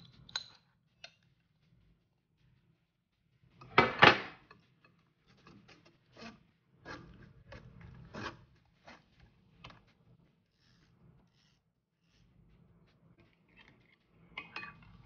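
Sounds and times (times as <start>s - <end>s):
spoon scraping mesh sieve: 5.3s - 9.2s.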